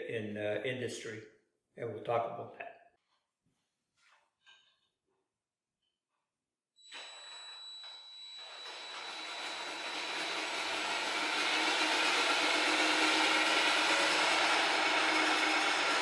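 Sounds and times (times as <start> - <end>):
drill motor whine: 6.8 - 16.0.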